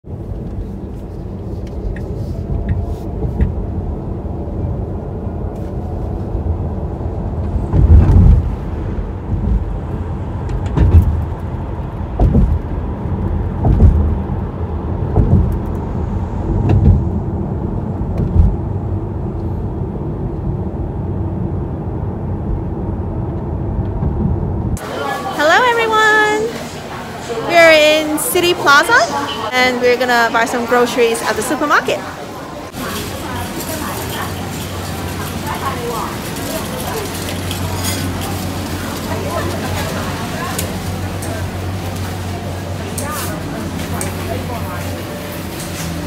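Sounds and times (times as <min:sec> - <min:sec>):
tyre and engine rumble: 0:00.0 - 0:27.4, 0:31.8 - 0:46.0
low thumps: 0:07.4 - 0:19.2, 0:22.4 - 0:24.8.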